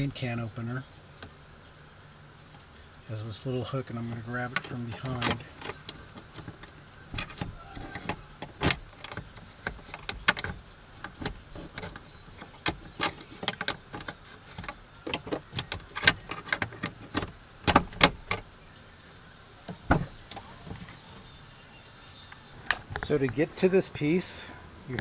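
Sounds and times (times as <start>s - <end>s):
plastic and metal clicks and knocks: 4.1s - 18.4s.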